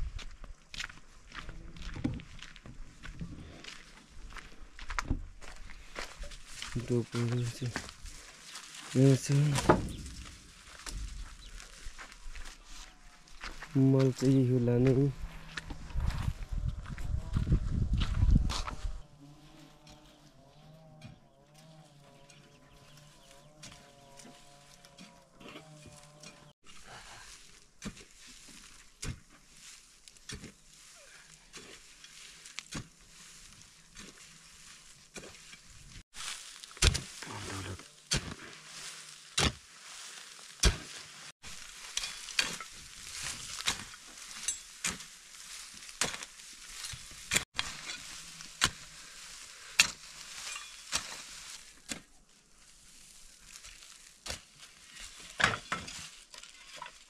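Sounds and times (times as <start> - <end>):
gritty scraping of loose dirt: 0.0 - 57.0
hoe chopping into dry soil: 27.8 - 30.7, 36.5 - 37.3, 38.0 - 39.7, 40.5 - 41.1, 41.8 - 49.0, 49.7 - 52.1.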